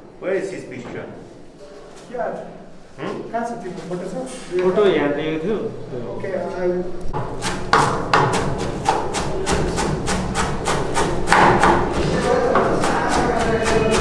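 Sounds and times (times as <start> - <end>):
knife chopping on cutting board: 7.2 - 14.0.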